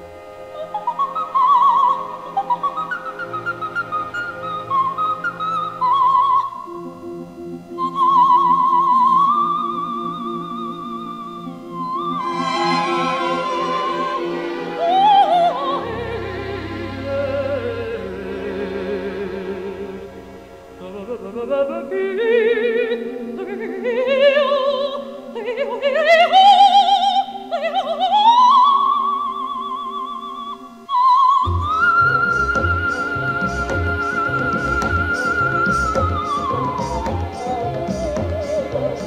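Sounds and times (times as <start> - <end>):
held chord: 0.0 - 24.0
wordless melody with vibrato: 0.0 - 39.0.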